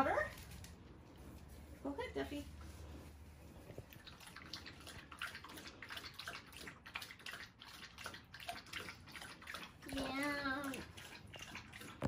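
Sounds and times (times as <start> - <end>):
dog lapping water from bowl: 3.8 - 12.0.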